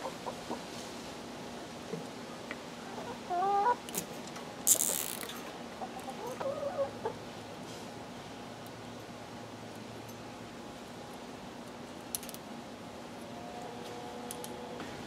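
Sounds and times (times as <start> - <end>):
chickens clucking: 0.0 - 0.7, 2.9 - 3.8, 5.8 - 7.2.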